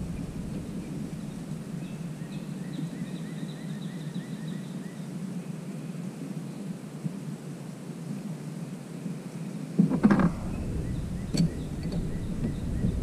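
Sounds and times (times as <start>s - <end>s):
low outdoor rumble: 0.0s - 3.0s, 9.8s - 13.0s
bird chirping: 0.0s - 5.1s, 10.1s - 13.0s.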